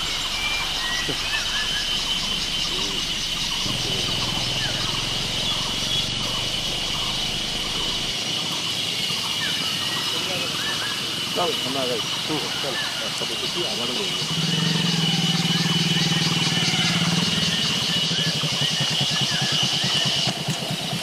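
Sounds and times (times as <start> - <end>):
bird chirps: 0.0 - 20.4
insects droning: 0.0 - 21.0.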